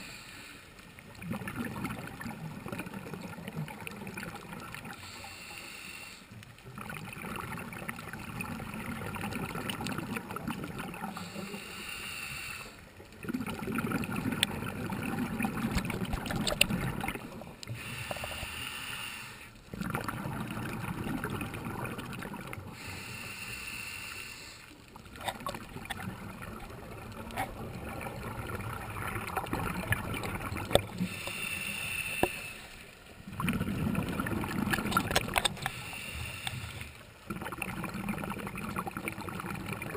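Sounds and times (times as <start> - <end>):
regulator inhale hiss: 0.0 - 0.9, 5.0 - 6.4, 11.1 - 12.9, 17.7 - 19.6, 22.8 - 24.8, 31.0 - 33.1, 35.5 - 37.0
exhale bubbling rumble: 13.2 - 17.6, 19.7 - 22.8, 25.0 - 32.3, 33.2 - 35.7, 36.7 - 39.9.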